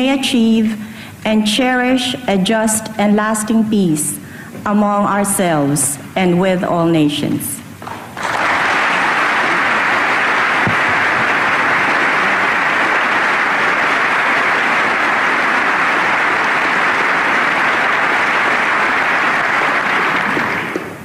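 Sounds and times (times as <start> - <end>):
large audience applauding: 7.8 - 21.0.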